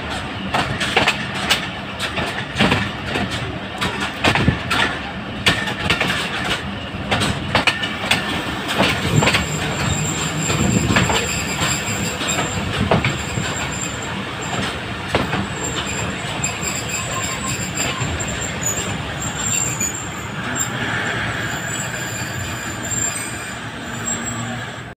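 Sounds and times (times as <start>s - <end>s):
train wheels rumbling on rail: 0.0s - 25.0s
clicks over rail joints: 0.1s - 13.7s
high-pitched wheel squeal: 9.4s - 14.6s, 15.4s - 24.8s.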